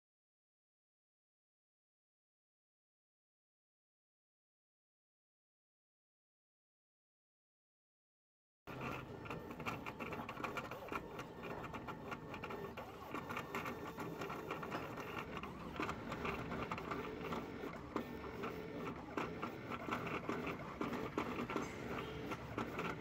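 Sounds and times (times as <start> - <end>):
cutting plotter motor whine: 8.7 - 23.0.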